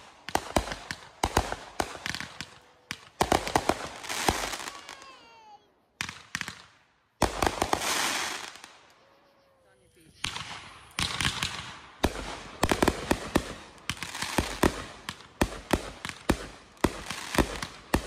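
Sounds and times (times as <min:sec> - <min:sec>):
fireworks bangs and crackling: 0:00.0 - 0:08.9, 0:10.1 - 0:18.0
whistling fireworks: 0:00.0 - 0:18.0.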